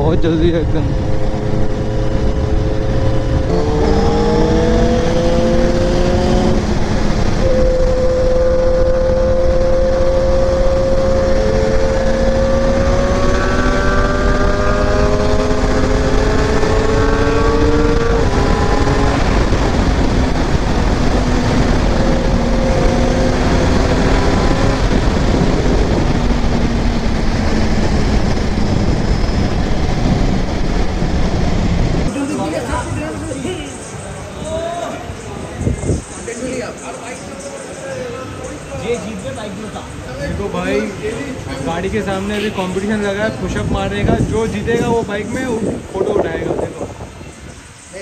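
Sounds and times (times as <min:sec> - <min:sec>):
motorcycle engine: 0:00.0 - 0:33.1
wind rush on microphone: 0:00.0 - 0:36.8, 0:39.9 - 0:48.0.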